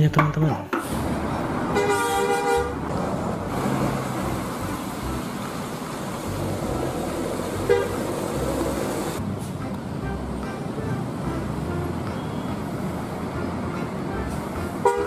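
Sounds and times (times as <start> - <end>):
road noise: 0.0 - 15.0
bus engine running: 0.8 - 15.0
coach horn: 1.7 - 2.8, 6.6 - 12.6, 13.3 - 15.0.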